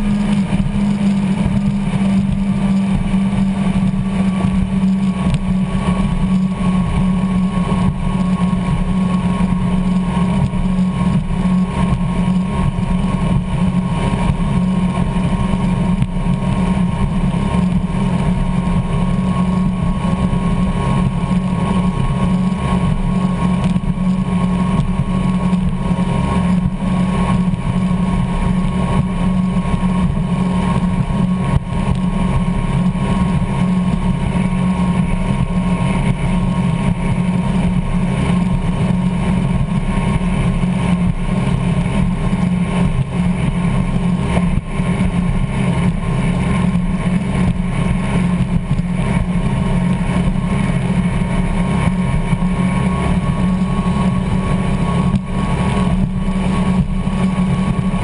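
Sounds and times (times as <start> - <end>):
boat engines droning: 0.0 - 58.0
wind and water rushing: 0.0 - 58.0.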